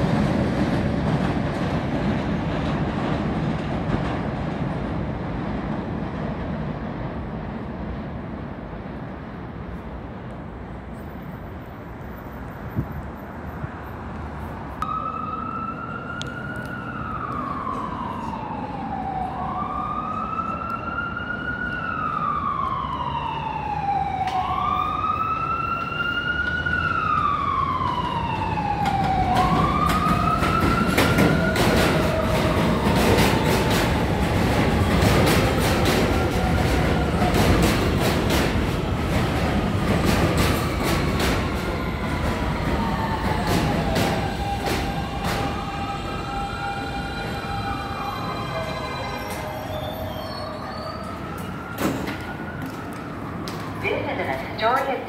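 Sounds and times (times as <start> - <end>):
emergency vehicle siren wailing: 14.8 - 54.6
train wheels clicking over rail joints: 28.8 - 45.8.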